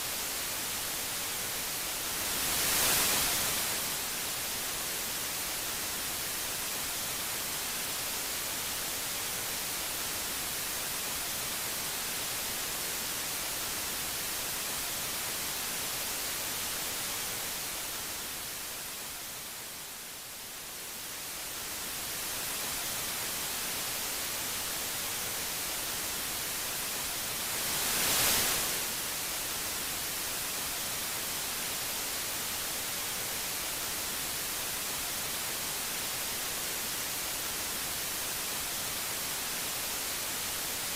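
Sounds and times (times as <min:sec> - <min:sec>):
static hiss: 0:00.0 - 0:40.9.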